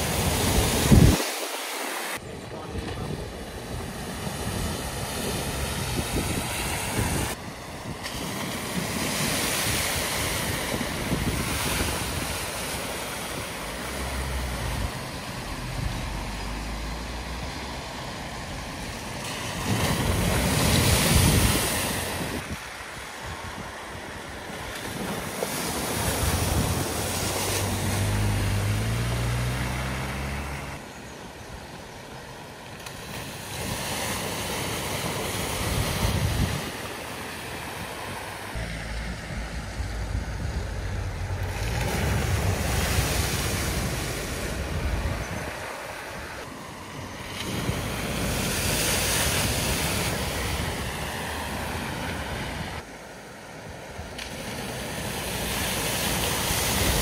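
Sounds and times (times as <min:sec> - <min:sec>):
floodwater rushing: 0:00.0 - 0:57.0
wheels splashing water: 0:00.0 - 0:57.0
car engines running: 0:27.2 - 0:30.9, 0:38.5 - 0:45.3
car engine accelerating: 0:27.4 - 0:30.8, 0:38.6 - 0:43.0.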